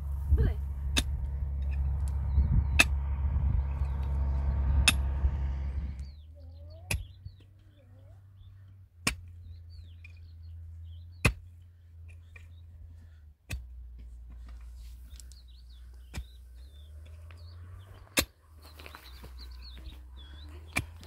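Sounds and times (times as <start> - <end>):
birds chirping: 0.4 - 13.2, 14.4 - 21.0
pickaxe striking stony soil: 9.0 - 9.3.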